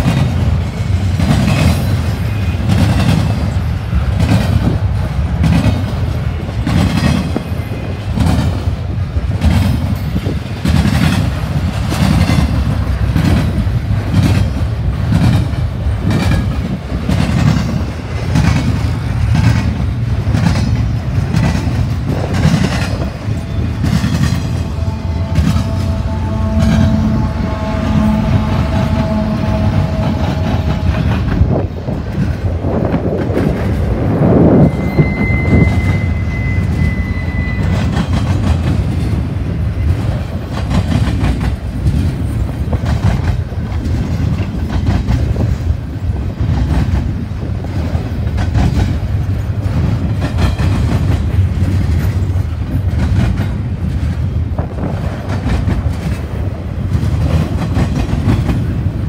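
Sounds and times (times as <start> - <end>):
wheels clacking over rail joints: 0.0 - 34.8, 36.6 - 59.0
freight train rumble: 0.0 - 59.0
locomotive tones: 0.0 - 59.0
faint wheel squeal: 34.5 - 38.2.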